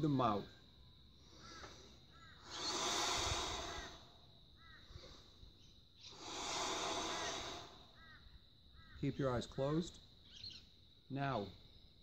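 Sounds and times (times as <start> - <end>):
man breathing out through lips: 1.2 - 4.1, 6.0 - 8.0.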